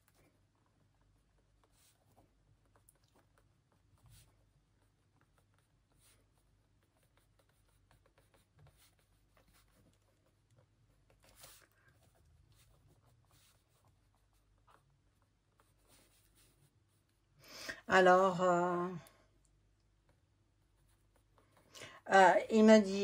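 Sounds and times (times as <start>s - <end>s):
pen scratching on paper: 0.8s - 17.2s, 20.1s - 21.7s.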